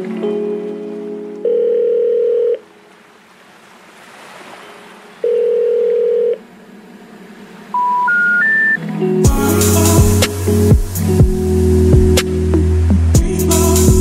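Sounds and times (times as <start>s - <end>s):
background music: 0.0s - 2.2s, 7.8s - 14.0s
short rising beeps: 7.7s - 8.8s
steady electronic tone: 7.7s - 14.0s
faint hiss: 9.3s - 14.0s.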